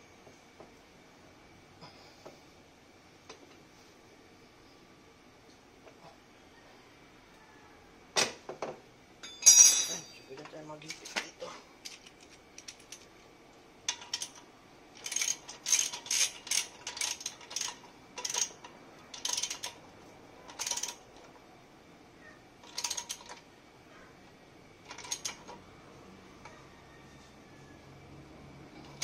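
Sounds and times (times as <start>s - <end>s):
ratchet wrench clicking: 15.0s - 19.8s, 20.5s - 21.0s.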